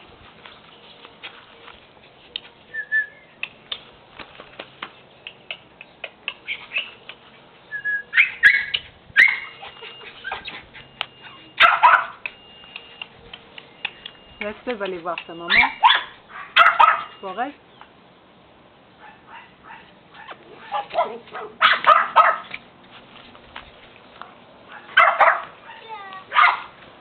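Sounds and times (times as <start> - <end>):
puppy whimpering and yipping: 6.4 - 7.0, 7.7 - 12.1.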